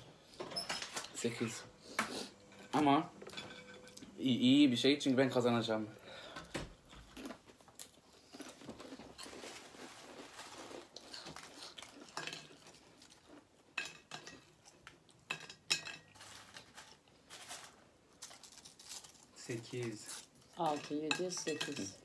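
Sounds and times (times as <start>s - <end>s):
chips rustling: 7.1s - 13.4s, 16.0s - 22.0s.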